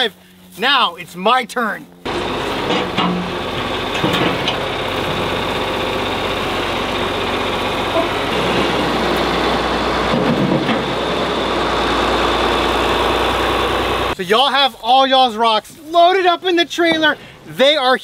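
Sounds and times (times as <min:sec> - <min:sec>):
tractor engine running: 0:01.5 - 0:15.4.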